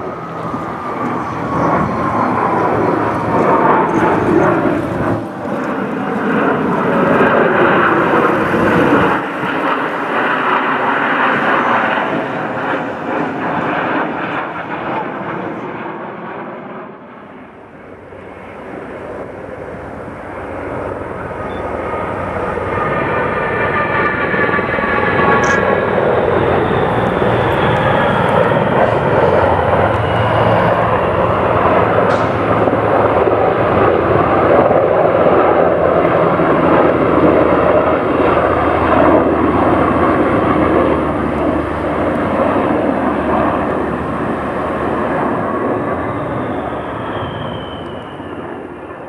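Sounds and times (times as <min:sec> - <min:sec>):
helicopter rotors: 0:00.0 - 0:49.0
turboprop aircraft engines: 0:00.0 - 0:49.0
high whine falling in pitch: 0:38.0 - 0:49.0.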